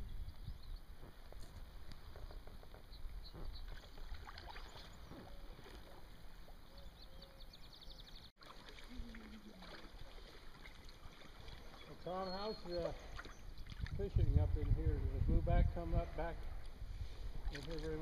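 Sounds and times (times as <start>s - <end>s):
wind rumble on microphone: 0.0s - 3.6s, 13.5s - 18.0s
paddles splashing in water: 1.1s - 7.6s, 8.3s - 14.8s, 16.2s - 18.0s.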